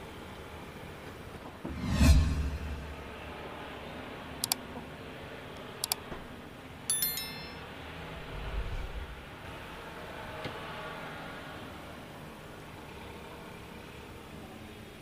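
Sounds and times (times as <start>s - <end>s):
faint low rumble: 1.6s - 3.3s
bright bell chime: 6.9s - 7.7s.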